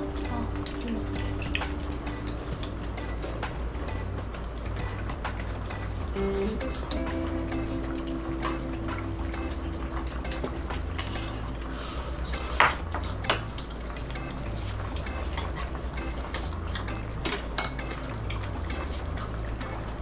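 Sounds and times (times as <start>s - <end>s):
utensils clinking on pan and bowl: 0.6s - 2.4s, 15.0s - 19.3s.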